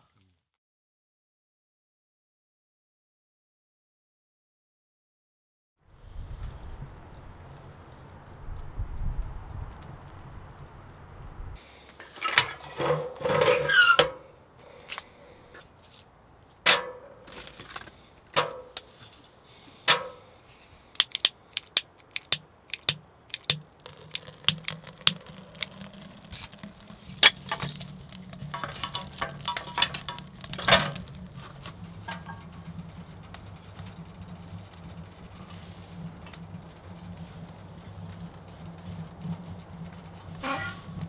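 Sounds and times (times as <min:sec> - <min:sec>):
fire rushing: 0:05.8 - 0:11.8, 0:20.9 - 0:41.0
fire crackling: 0:05.8 - 0:13.2, 0:20.2 - 0:41.0
metal knocks and scrapes: 0:12.0 - 0:14.2, 0:22.2 - 0:41.0.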